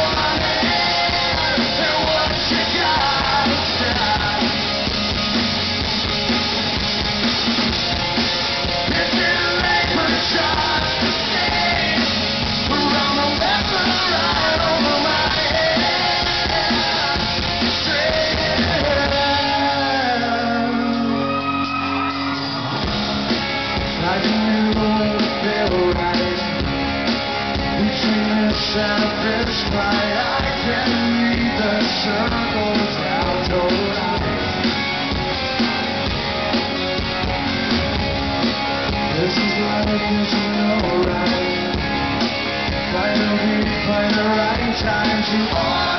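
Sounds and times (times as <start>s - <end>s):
man singing: 0.0s - 4.8s, 8.8s - 21.4s, 23.9s - 26.8s, 27.7s - 34.7s, 38.9s - 45.9s
live rock band: 0.0s - 45.9s.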